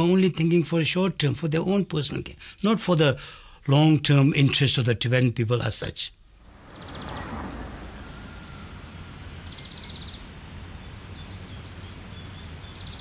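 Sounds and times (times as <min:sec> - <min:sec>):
small birds chirping: 0:06.4 - 0:13.0.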